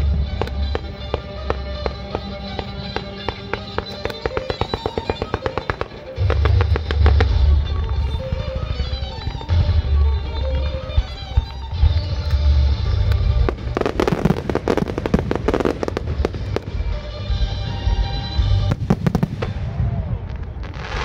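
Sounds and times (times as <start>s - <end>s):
fireworks bangs and crackling: 0.0s - 21.0s
music with heavy bass: 6.2s - 19.2s.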